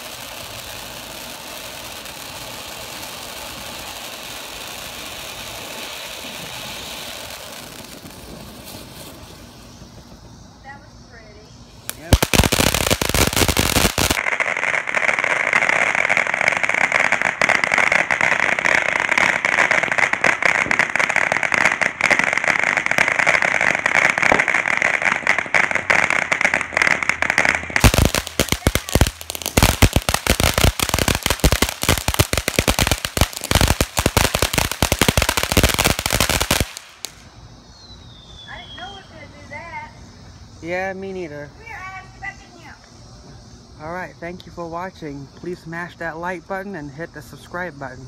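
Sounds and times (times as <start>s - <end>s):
loud crackling pops: 0.0s - 10.3s, 11.8s - 37.4s
firework fountain spraying sparks: 0.0s - 37.4s.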